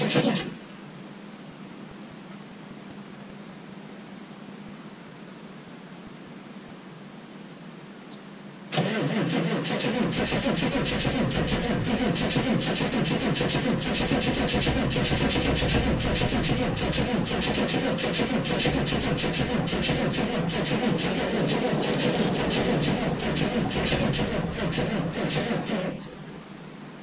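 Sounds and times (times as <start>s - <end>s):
diesel engine starting and idling: 8.7s - 26.3s.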